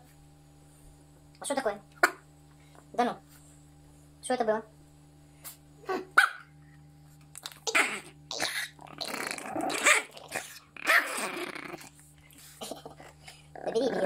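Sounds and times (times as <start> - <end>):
dog yapping: 5.9 - 6.5
small dog growling and snarling: 7.4 - 14.0.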